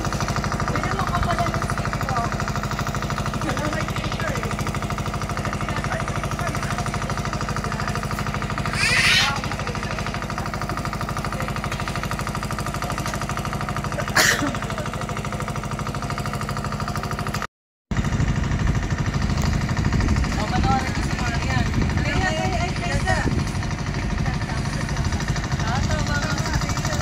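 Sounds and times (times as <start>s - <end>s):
engine running with fast pulse: 0.0s - 27.0s
short noisy bursts: 8.4s - 11.0s.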